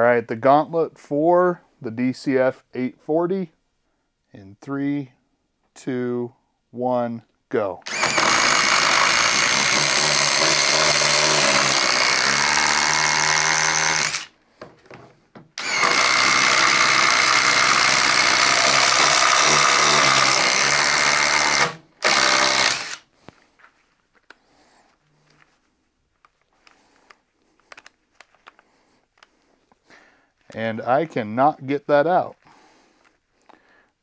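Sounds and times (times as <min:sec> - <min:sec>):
impact driver hammering: 0:07.9 - 0:14.8, 0:15.4 - 0:23.0.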